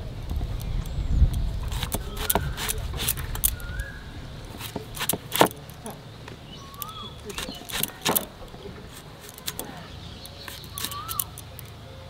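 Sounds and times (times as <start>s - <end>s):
blade cutting jackfruit: 1.4s - 3.9s, 4.5s - 6.0s, 6.7s - 11.6s.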